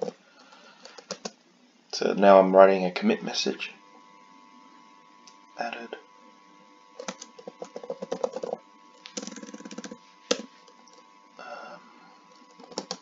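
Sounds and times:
computer keyboard typing: 0.0 - 1.3, 7.0 - 11.0, 12.3 - 13.0.

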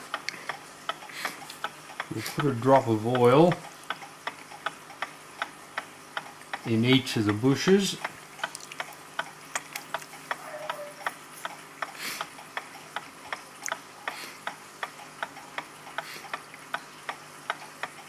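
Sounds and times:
mechanical clock ticking: 0.0 - 18.0.

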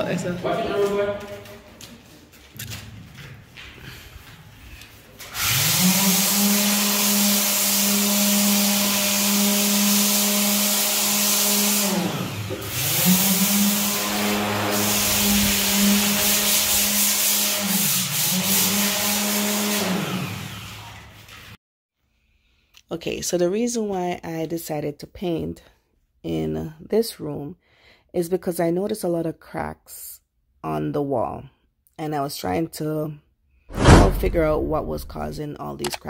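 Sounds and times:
power sander on concrete: 5.4 - 21.3.

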